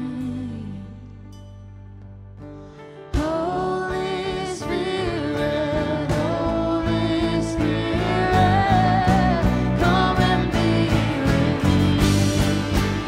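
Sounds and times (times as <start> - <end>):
person singing: 0.0 - 1.4, 3.1 - 13.0
band accompaniment: 3.1 - 13.0
steady drum beat: 6.0 - 13.0.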